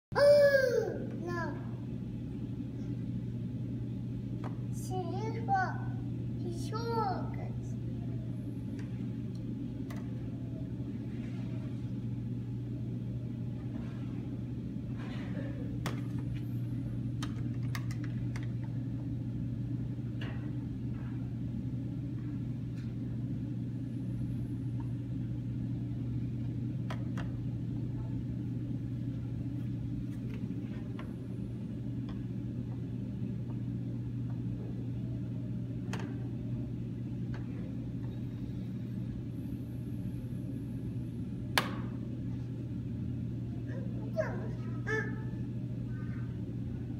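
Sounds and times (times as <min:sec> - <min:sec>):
steady low hum: 0:00.1 - 0:46.9.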